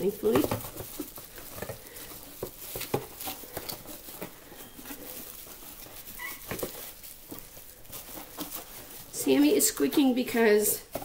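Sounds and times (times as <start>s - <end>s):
bubble wrap crinkling: 0.0s - 11.0s
cat squeaking: 6.0s - 6.7s.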